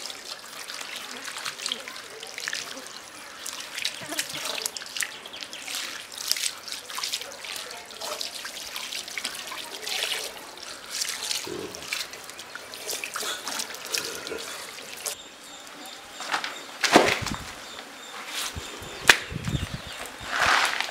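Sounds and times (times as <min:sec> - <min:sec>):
water splashing and dripping: 0:00.0 - 0:15.2.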